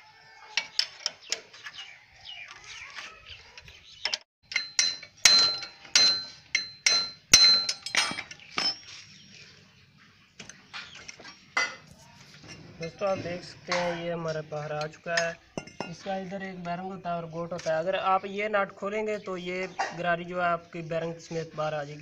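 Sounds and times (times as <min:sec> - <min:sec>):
metal tools striking metal: 0:04.1 - 0:08.9, 0:12.4 - 0:14.1, 0:14.7 - 0:16.1.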